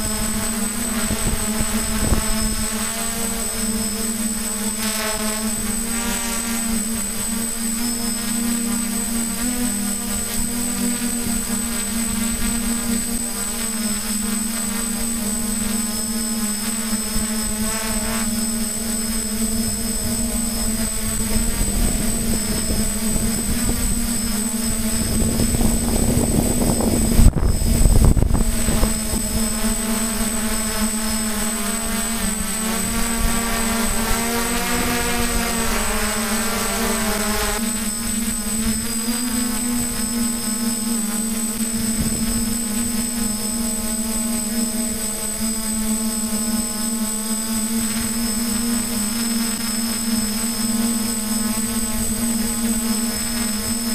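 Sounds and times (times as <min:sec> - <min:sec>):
wind noise on microphone: 0:00.0 - 0:04.8, 0:14.6 - 0:40.4, 0:41.3 - 0:44.2
drone propellers humming: 0:00.0 - 0:53.9.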